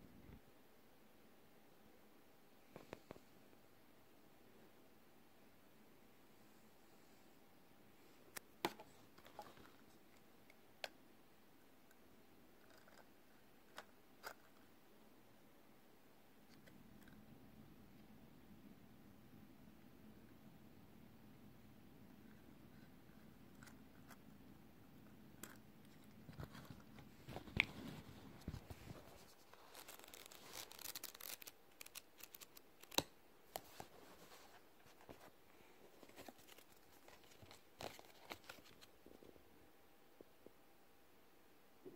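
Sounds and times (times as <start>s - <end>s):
faint rustling: 25.4s - 39.4s.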